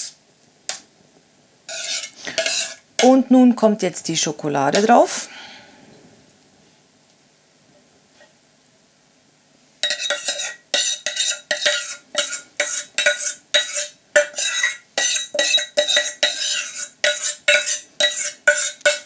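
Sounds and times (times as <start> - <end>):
utensil scraping metal pot: 1.7 - 3.2, 9.8 - 19.0.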